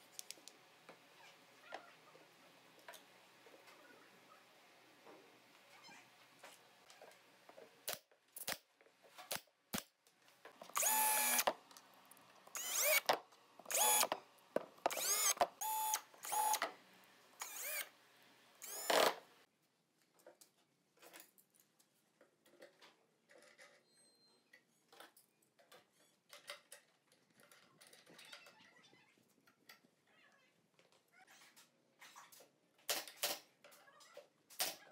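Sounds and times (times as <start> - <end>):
cordless drill driving screws: 10.6 - 11.6, 12.4 - 14.2, 14.9 - 16.7, 17.4 - 17.9, 18.6 - 19.2.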